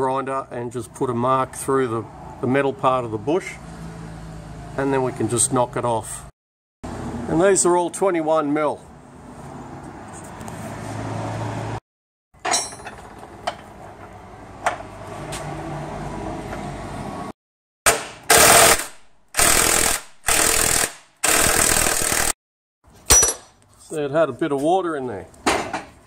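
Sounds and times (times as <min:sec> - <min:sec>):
impact wrench hammering: 0:23.1 - 0:23.6.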